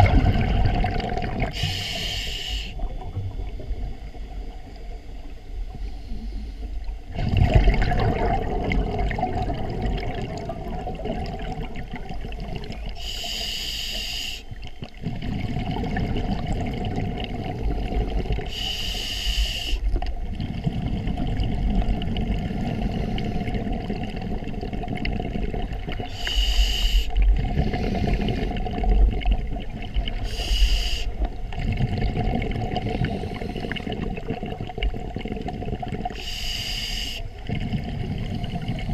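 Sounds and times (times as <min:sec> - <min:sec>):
exhaled air bubbling: 0:00.0 - 0:38.9
regulator inhalation hiss: 0:01.5 - 0:02.9, 0:13.0 - 0:14.6, 0:18.5 - 0:19.9, 0:26.1 - 0:27.2, 0:30.2 - 0:31.2, 0:36.2 - 0:37.3.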